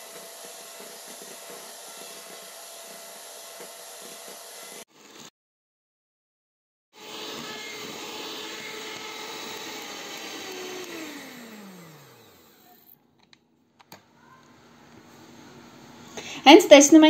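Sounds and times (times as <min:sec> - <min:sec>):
electric hand mixer whipping cream: 0:00.0 - 0:05.3, 0:07.0 - 0:12.9.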